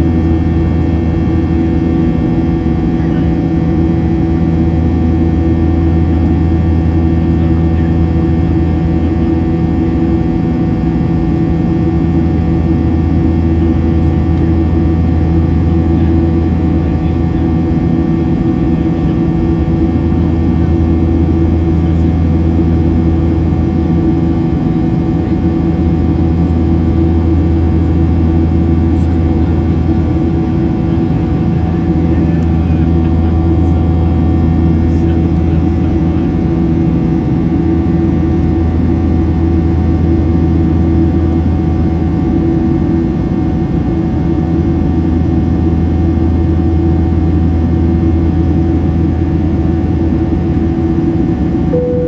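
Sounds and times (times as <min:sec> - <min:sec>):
airplane cabin engine drone: 0:00.0 - 0:52.0.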